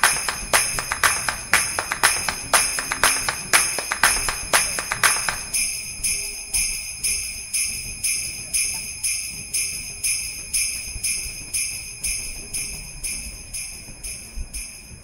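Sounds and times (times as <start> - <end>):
backing music track: 0.0 - 5.5
sleigh bells shaken on a beat: 0.0 - 15.0.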